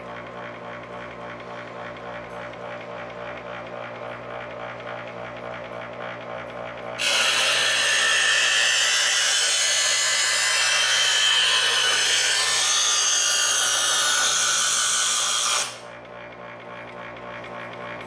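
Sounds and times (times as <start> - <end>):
electric motor hum: 0.0 - 18.0
steel grinding on sharpener wheels: 7.0 - 15.9.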